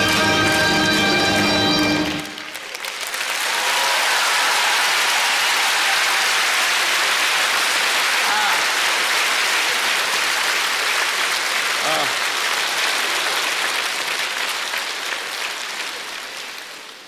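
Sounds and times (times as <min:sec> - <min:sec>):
orchestral music: 0:00.0 - 0:02.5
audience applause: 0:00.0 - 0:17.0.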